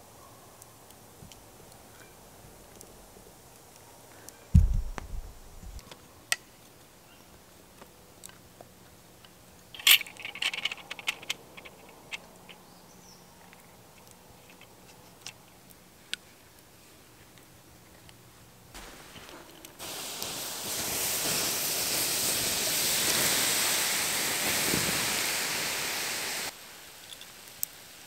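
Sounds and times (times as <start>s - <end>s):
low dull thump: 4.6s - 5.8s
wooden parts clattering: 9.8s - 12.2s.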